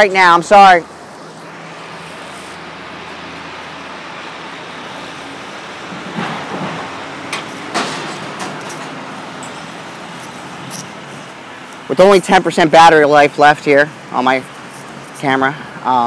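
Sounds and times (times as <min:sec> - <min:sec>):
outdoor traffic noise: 0:00.0 - 0:16.0
sharp knocks: 0:06.0 - 0:09.0.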